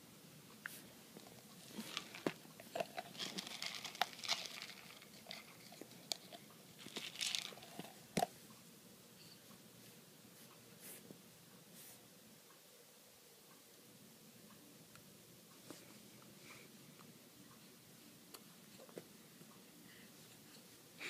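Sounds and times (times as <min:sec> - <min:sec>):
objects being handled: 0:00.7 - 0:08.3.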